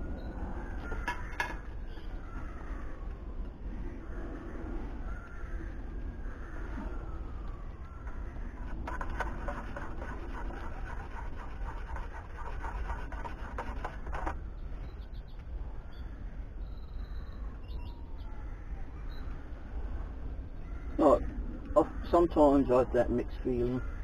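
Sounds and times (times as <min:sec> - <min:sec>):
steady low rumble: 0:00.0 - 0:10.7
crows croaking: 0:00.4 - 0:14.4, 0:15.6 - 0:16.6, 0:18.2 - 0:19.8, 0:20.6 - 0:24.0.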